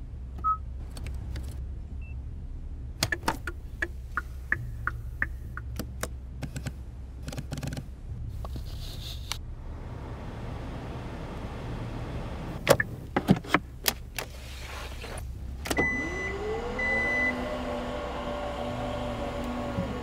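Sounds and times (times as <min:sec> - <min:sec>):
low steady hum: 0:00.0 - 0:20.0
tailgate motor whining: 0:15.6 - 0:20.0.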